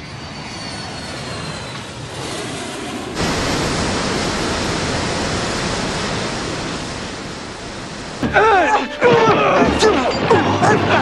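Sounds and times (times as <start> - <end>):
aircraft engines roaring: 0.0 - 11.0.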